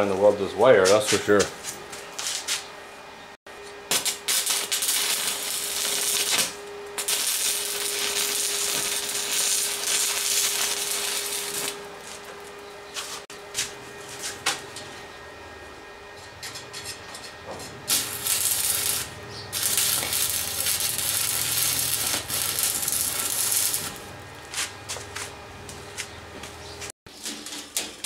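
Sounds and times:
welding arc crackling and hissing: 3.9 - 12.5, 17.9 - 25.2.

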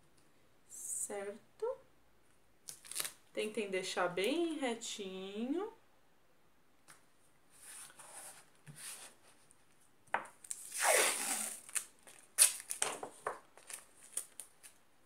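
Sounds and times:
tape crackling: 2.6 - 3.2, 10.4 - 14.8
tape ripping off roll: 10.4 - 14.5
tape rubbing on paper: 10.5 - 12.6.

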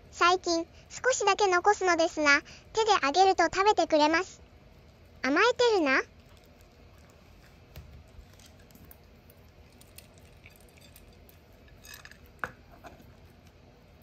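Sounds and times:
dog chewing dry kibble: 6.1 - 12.4.

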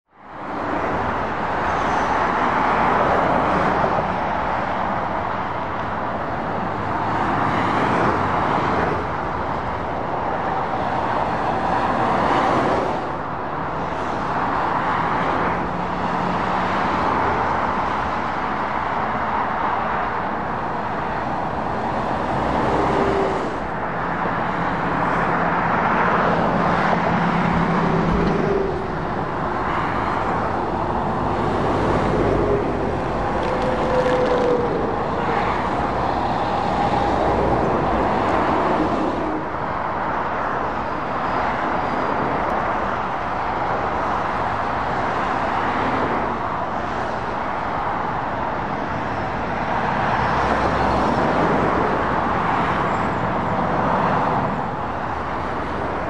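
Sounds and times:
tyre roar of passing vehicles: 0.0 - 56.0
truck engine drone: 20.0 - 45.0.

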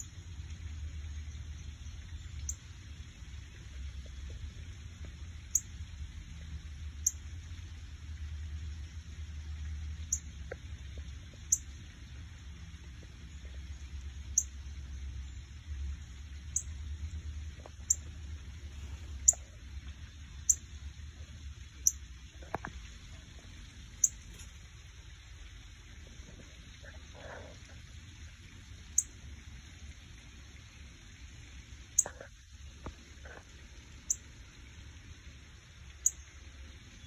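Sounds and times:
steady low hum: 0.0 - 37.0
songbird chip calls: 2.2 - 2.6, 5.5 - 5.7, 10.1 - 10.3, 11.5 - 11.7, 14.3 - 14.6, 16.5 - 16.7, 17.7 - 18.1, 18.8 - 19.4, 20.5 - 20.7, 34.0 - 34.2, 36.0 - 36.2.

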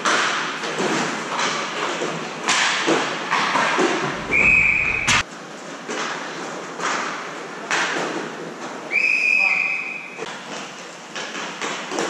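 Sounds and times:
hockey sticks and puck knocking: 0.0 - 5.3, 5.9 - 8.4.

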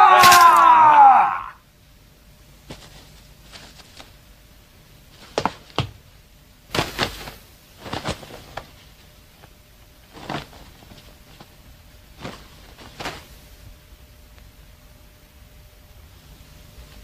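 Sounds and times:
faint steady background noise: 0.0 - 17.0
sharp knocks and thuds: 5.2 - 6.0.

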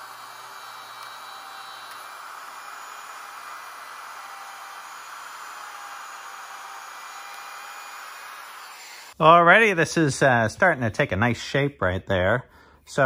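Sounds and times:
router cutting wood: 0.0 - 9.2.

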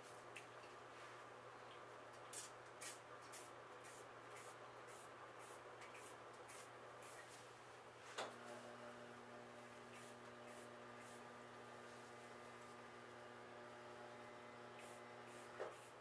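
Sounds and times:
faint steady hum: 0.0 - 16.0
spray bottle spritzes: 2.3 - 7.2, 14.8 - 16.0.

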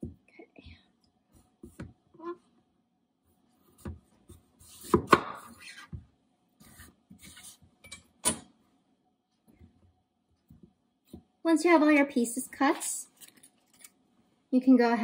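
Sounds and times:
knife cutting squash: 4.6 - 5.9.

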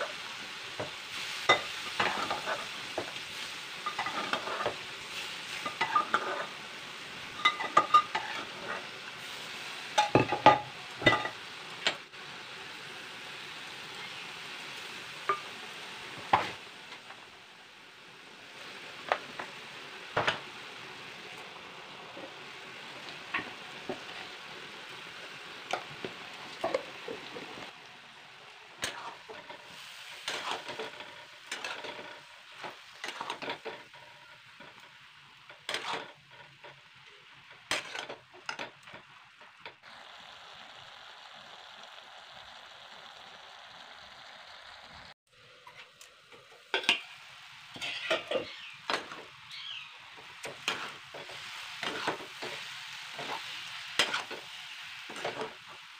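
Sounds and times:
vegetables sizzling in oil: 0.0 - 55.9
metal spatula scraping pan: 1.1 - 6.6, 7.4 - 8.9, 28.8 - 34.8, 35.6 - 36.8, 37.7 - 39.1, 47.7 - 49.8, 50.4 - 54.5.

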